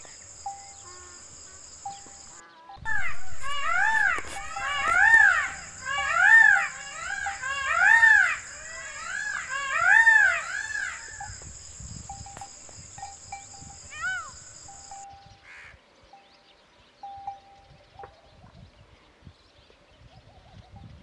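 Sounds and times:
peafowl wailing calls: 0:00.0 - 0:11.4, 0:13.0 - 0:15.7.

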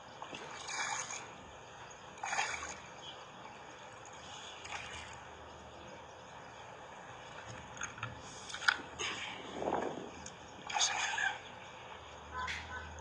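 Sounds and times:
fish splashing in water: 0:00.1 - 0:03.1, 0:04.1 - 0:05.4, 0:08.2 - 0:11.5.

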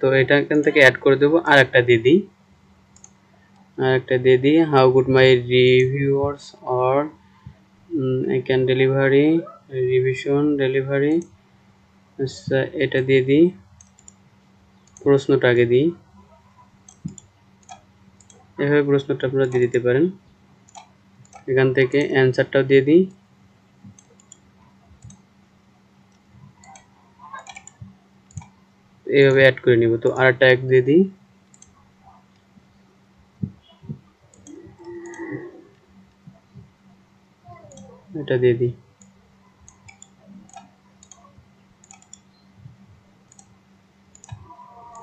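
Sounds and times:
low electrical hum: 0:00.0 - 0:45.0
computer mouse clicks: 0:02.9 - 0:03.7, 0:13.8 - 0:14.2, 0:14.8 - 0:15.1, 0:16.8 - 0:18.4, 0:19.4 - 0:19.8, 0:20.7 - 0:22.1, 0:23.9 - 0:25.2, 0:26.1 - 0:28.5, 0:31.5 - 0:32.5, 0:34.3 - 0:35.3, 0:37.7 - 0:37.9, 0:39.0 - 0:42.4, 0:43.3 - 0:43.5, 0:44.1 - 0:45.0.

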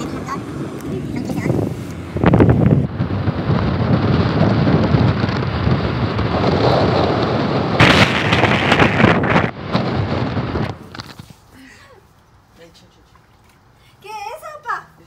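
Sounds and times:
wind buffeting microphone: 0:00.0 - 0:11.4
road and engine rumble: 0:00.0 - 0:15.0.

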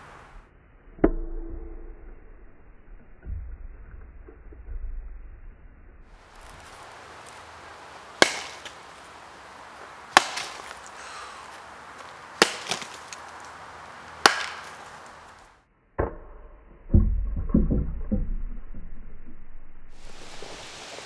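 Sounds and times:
baseball bat smashing fruit: 0:08.2 - 0:08.8, 0:10.1 - 0:10.9, 0:12.4 - 0:13.3, 0:14.2 - 0:14.9.

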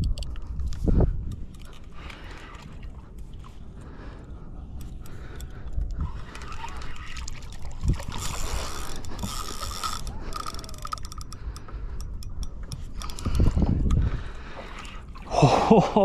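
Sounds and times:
fishing reel clicking and whirring: 0:04.8 - 0:14.1.

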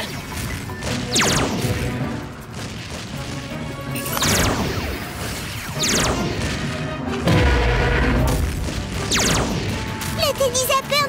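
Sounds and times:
background music: 0:00.0 - 0:11.0
falling laser zaps: 0:00.9 - 0:02.2, 0:03.9 - 0:06.9, 0:08.3 - 0:10.2.

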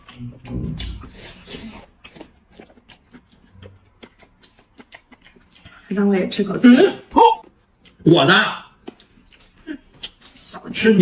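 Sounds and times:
man chewing and slurping food: 0:00.0 - 0:05.8.

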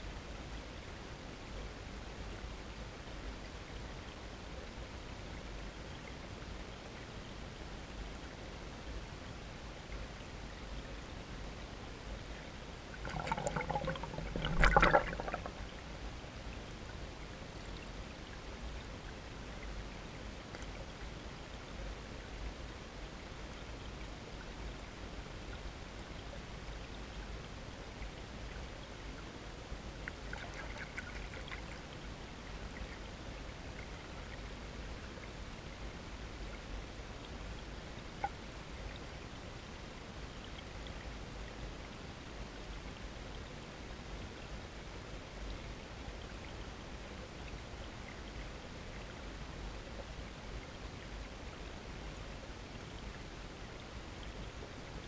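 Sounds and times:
stream water running under ice: 0:00.1 - 0:55.0.

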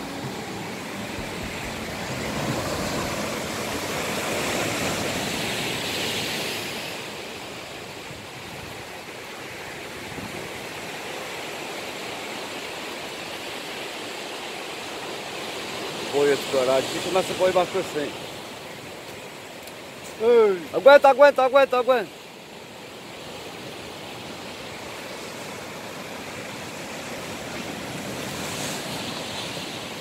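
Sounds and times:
sea surf on rocky shore: 0:00.0 - 0:30.0.

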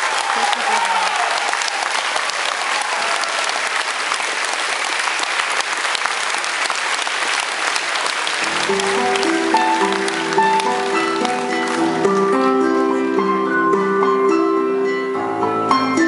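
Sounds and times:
audience applauding: 0:00.0 - 0:13.1
band playing held notes: 0:08.4 - 0:13.9.

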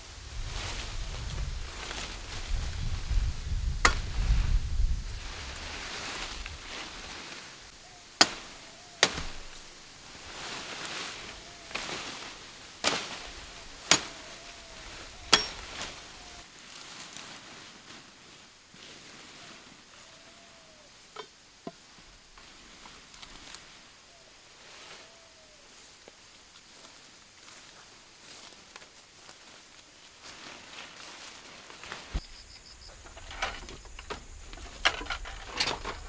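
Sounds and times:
leaves rustling: 0:00.0 - 0:36.0
machete chopping branches: 0:03.8 - 0:04.2, 0:08.2 - 0:09.7, 0:11.7 - 0:14.5, 0:15.2 - 0:16.0.

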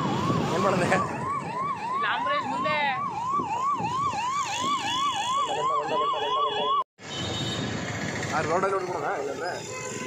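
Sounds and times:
electronic siren wailing: 0:00.0 - 0:06.9.

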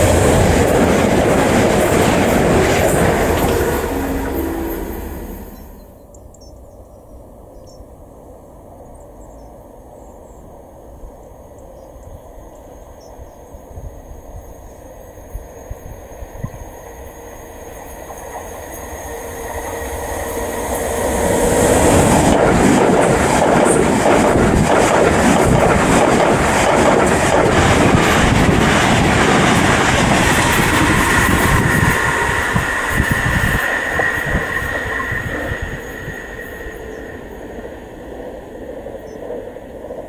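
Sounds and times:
train rushing past: 0:00.0 - 0:06.0, 0:15.1 - 0:40.0.

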